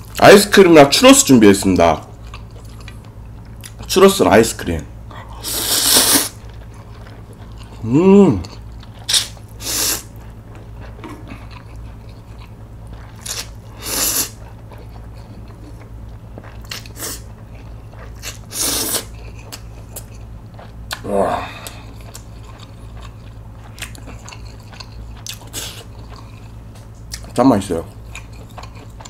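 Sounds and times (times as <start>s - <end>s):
chewing: 1.6s - 3.9s, 5.1s - 29.0s
noodle slurping: 5.4s - 6.4s, 13.1s - 14.5s, 18.0s - 19.6s
wet mouth clicks: 9.0s - 9.4s.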